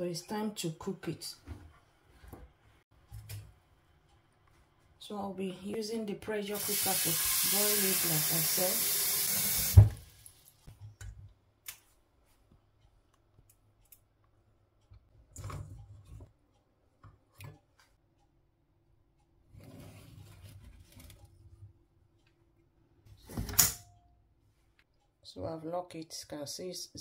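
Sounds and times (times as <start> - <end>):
tap water running into pot: 6.6 - 10.4.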